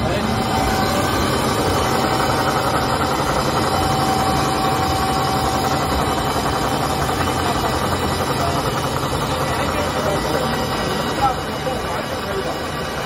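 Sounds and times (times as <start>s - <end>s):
paper machine running: 0.0s - 13.0s
thin steady tone: 0.0s - 13.0s.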